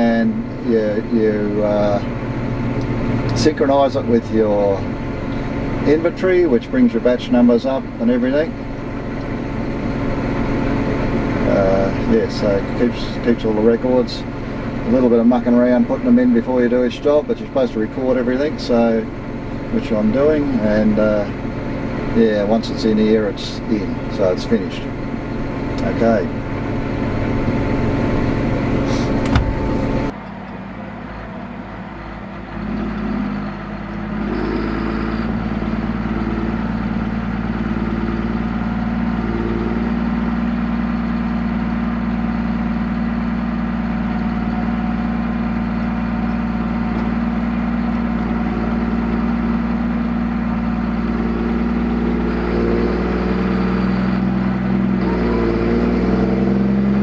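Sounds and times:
tractor diesel engine droning: 0.0s - 57.0s.

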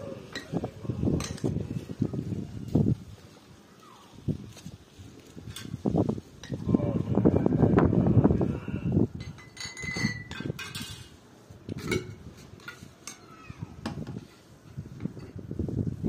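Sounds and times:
tableware clinking: 9.2s - 13.3s.

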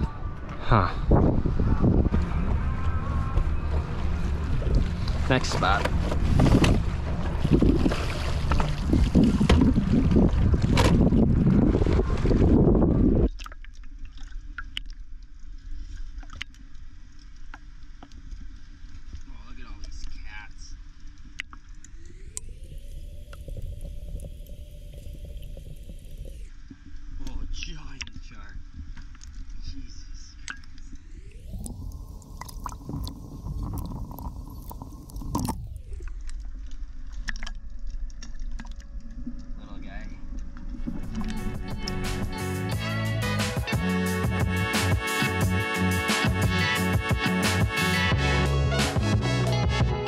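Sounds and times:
steady low rumble: 0.0s - 13.3s, 20.4s - 50.0s
muffled water lapping and gurgling: 0.0s - 42.9s
splash: 4.4s - 12.6s.

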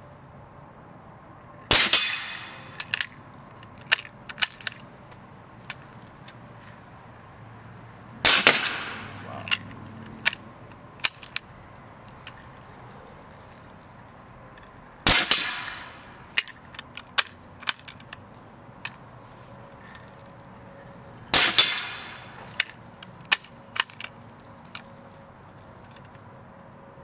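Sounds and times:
compressed-air cannon blast: 1.7s - 2.8s, 8.2s - 9.3s, 15.0s - 16.2s, 21.3s - 22.4s.

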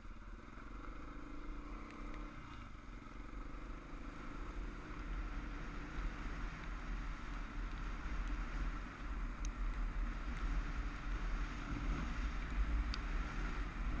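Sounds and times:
motorcycle running on gravel: 0.0s - 14.0s
sharp ticks: 4.5s - 11.4s.

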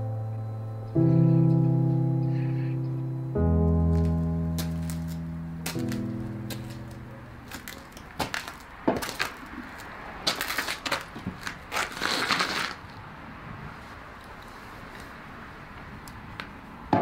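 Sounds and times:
footsteps on gritty floor: 3.9s - 12.9s.

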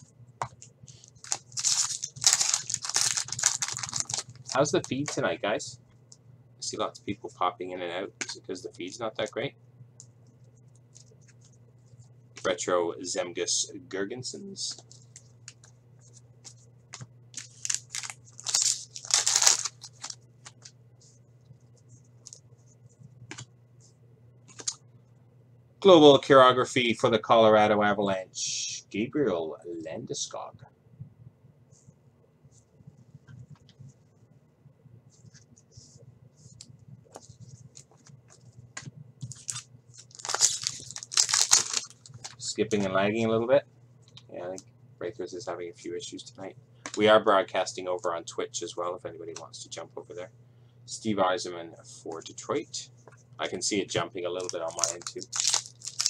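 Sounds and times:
faint low hum: 0.0s - 56.0s
cards rustling and clicking: 0.5s - 5.2s, 16.4s - 20.8s, 37.1s - 42.4s, 54.3s - 56.0s
foil pack tearing: 1.2s - 4.8s, 17.4s - 20.2s, 39.4s - 42.4s, 54.4s - 56.0s.

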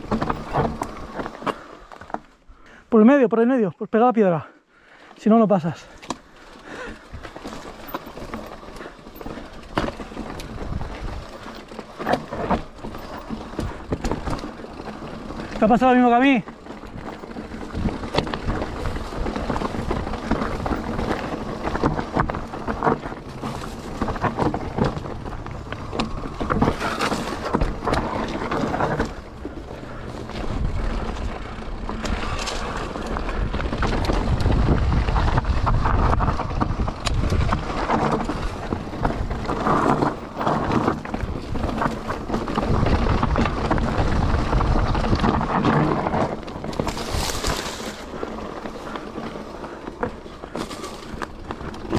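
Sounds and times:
bike knocks and rattles: 0.0s - 2.3s, 6.0s - 51.9s
bike tyres rolling over stones: 0.0s - 2.8s, 4.4s - 51.9s
wind rumble on microphone: 17.6s - 47.6s.

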